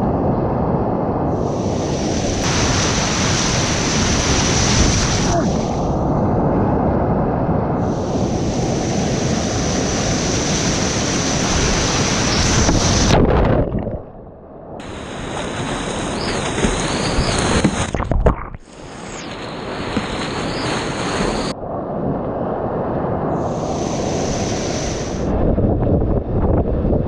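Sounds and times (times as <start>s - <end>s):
muffled underwater wash: 0.1s - 27.0s
waves splashing: 1.3s - 6.0s, 7.8s - 14.2s, 14.8s - 25.4s
rushing whitewater rapids: 14.8s - 18.0s.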